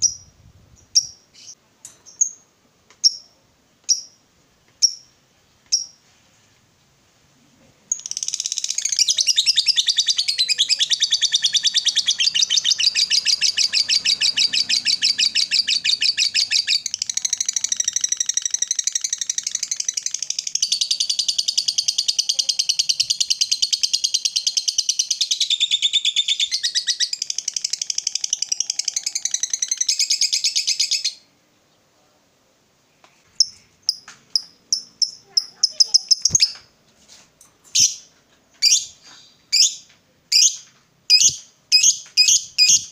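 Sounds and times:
lovebird rapid shrill chatter: 8.0 - 31.0, 33.4 - 36.6, 40.4 - 42.9.

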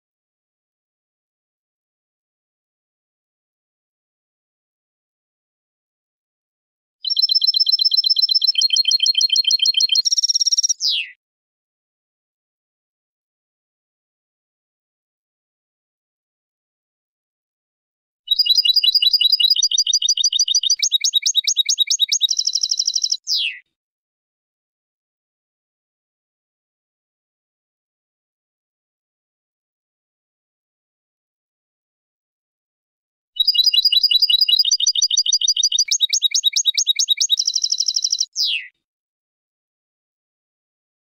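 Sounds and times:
goldfinch chirping and trilling: 7.0 - 11.1, 18.3 - 23.6, 33.4 - 38.7.

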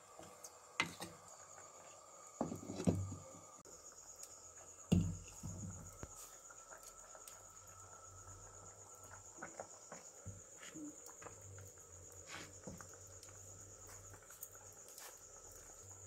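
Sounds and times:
crickets trilling: 0.0 - 16.0
clay pot knocks and scrapes: 0.2 - 1.3, 2.4 - 3.4, 4.9 - 6.1.

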